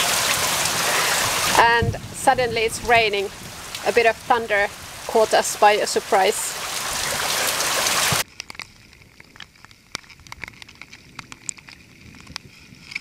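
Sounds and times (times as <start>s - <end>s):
heavy rain hissing: 0.0s - 8.2s
raindrops ticking: 0.0s - 12.4s.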